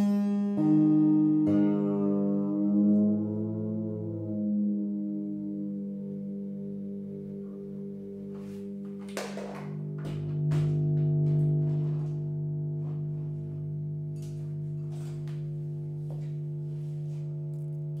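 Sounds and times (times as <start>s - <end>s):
electric guitar droning: 0.0s - 18.0s
guitar knocks and rattles: 9.0s - 13.6s.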